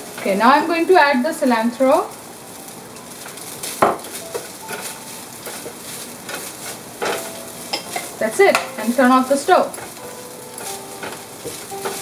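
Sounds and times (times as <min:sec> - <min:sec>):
faint sizzle: 0:00.0 - 0:12.0
spatula scraping a frying pan: 0:00.0 - 0:12.0.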